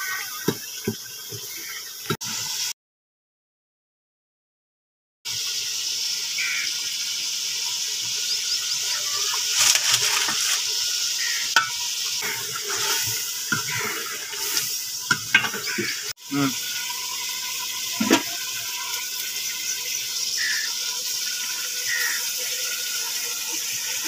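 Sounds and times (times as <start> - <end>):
food sizzling in a pot: 0.0 - 2.7, 5.3 - 24.0
metal spatula scraping a pot: 9.3 - 16.1.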